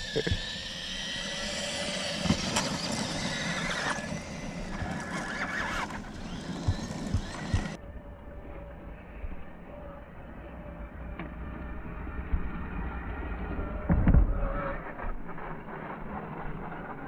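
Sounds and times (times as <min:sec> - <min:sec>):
electric motor whining: 0:00.0 - 0:12.8.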